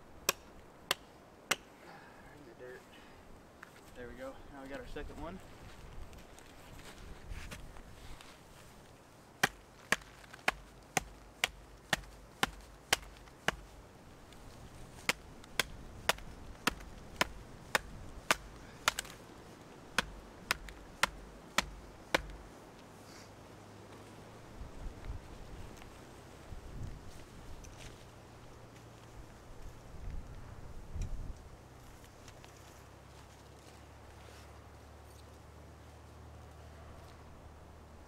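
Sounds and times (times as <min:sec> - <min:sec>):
hatchet strikes on wood: 0:00.3 - 0:01.7, 0:09.4 - 0:13.7, 0:15.0 - 0:19.2, 0:20.0 - 0:22.4.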